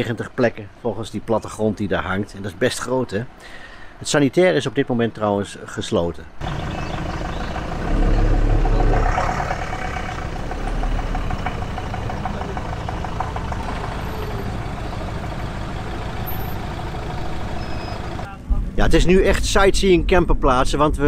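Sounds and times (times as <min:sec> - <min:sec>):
motorhome engine running: 0:06.4 - 0:18.4.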